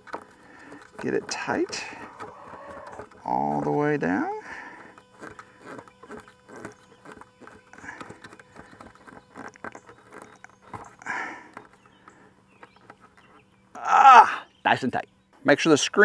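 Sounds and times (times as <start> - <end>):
plastic threads clicking and creaking: 0.0 - 13.3
strained breath: 4.4 - 5.8, 10.9 - 12.4.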